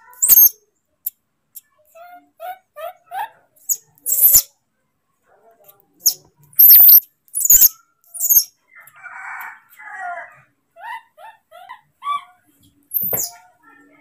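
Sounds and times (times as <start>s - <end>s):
baby monkey screaming: 0.1s - 0.6s, 2.0s - 4.5s, 6.0s - 8.5s, 10.8s - 13.4s.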